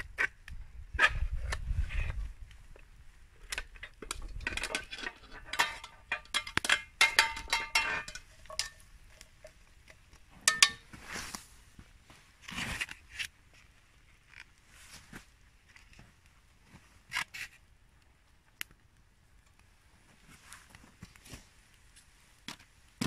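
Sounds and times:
metal tongs clinking on pot: 4.0s - 9.5s, 10.5s - 10.8s.

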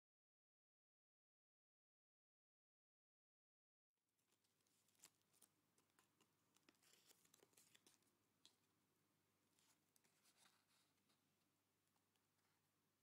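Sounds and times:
stiff paper crinkling and clicking: 4.3s - 8.7s.

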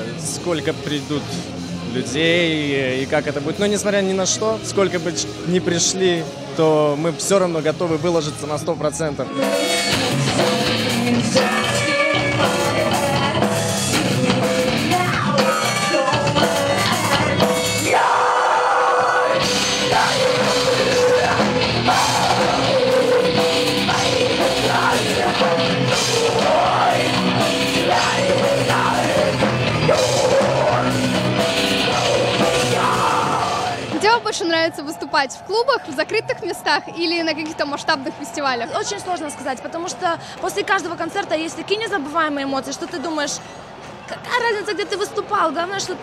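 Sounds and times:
distorted guitars: 0.0s - 34.6s
woman singing: 9.4s - 17.9s
drum kit: 9.4s - 34.2s.

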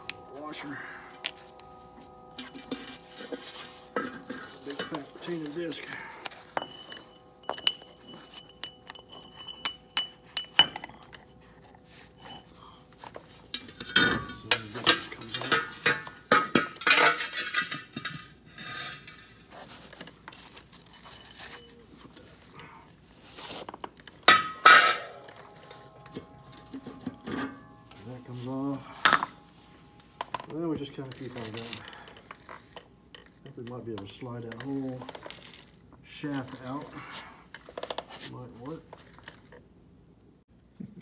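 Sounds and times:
metal discs clinking and clanking: 0.0s - 22.4s, 23.8s - 29.5s.

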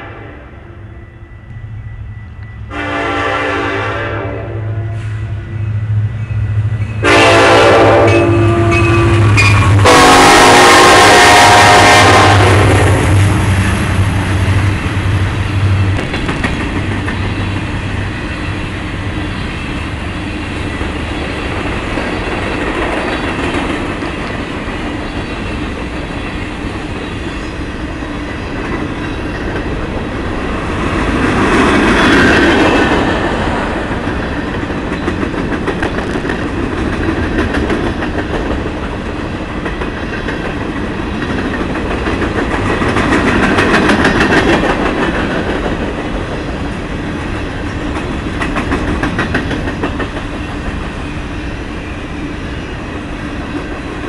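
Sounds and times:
locomotive engine hum: 0.0s - 54.0s
train wheels clicking over rail joints: 13.0s - 51.1s.

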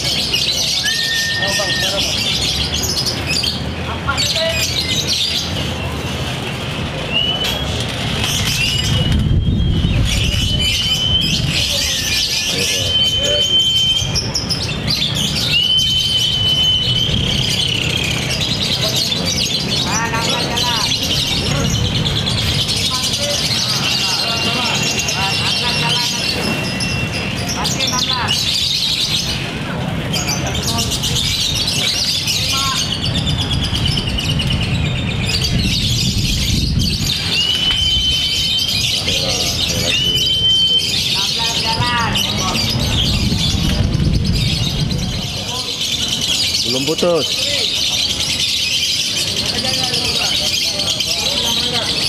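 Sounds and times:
bird chirping rapidly: 0.0s - 6.0s, 6.9s - 52.0s
bird whistled note: 0.7s - 2.2s, 15.4s - 18.0s, 37.3s - 38.8s.

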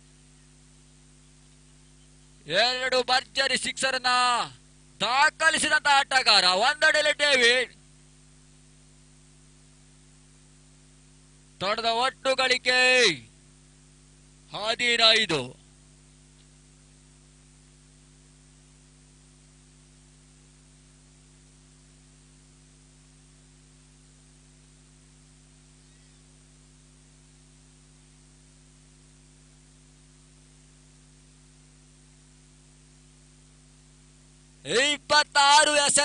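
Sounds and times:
faint electrical hum: 0.0s - 36.0s
even hiss: 14.4s - 27.3s.

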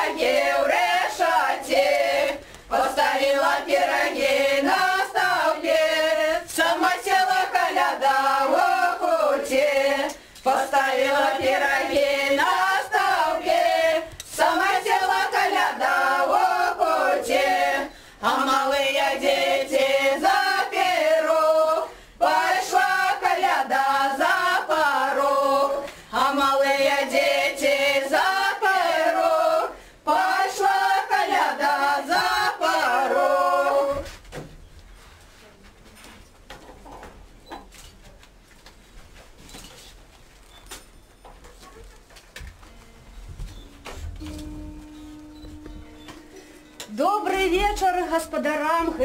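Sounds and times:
women singing without instruments: 0.0s - 34.1s.

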